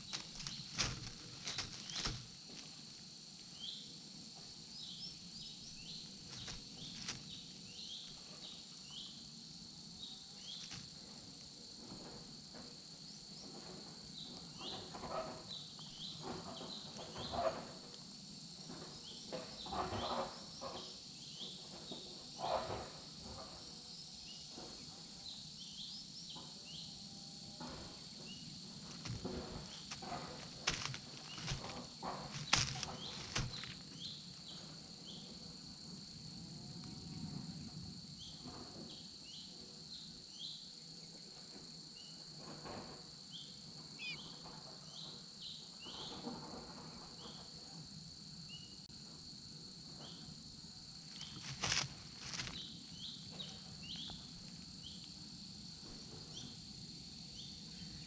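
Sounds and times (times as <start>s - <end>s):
twigs and dry leaves cracking: 0.0s - 2.8s, 6.2s - 7.4s, 10.5s - 11.0s, 28.8s - 34.2s, 51.1s - 52.6s
high insect chirps: 0.0s - 58.0s
insect drone: 0.0s - 58.0s.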